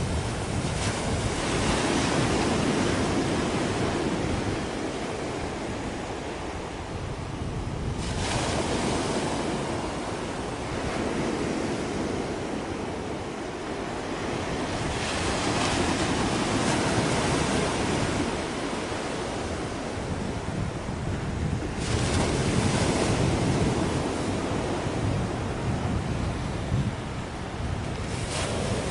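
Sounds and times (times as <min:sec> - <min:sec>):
sea waves washing: 0:00.0 - 0:28.9
wind buffeting microphone: 0:00.0 - 0:28.9.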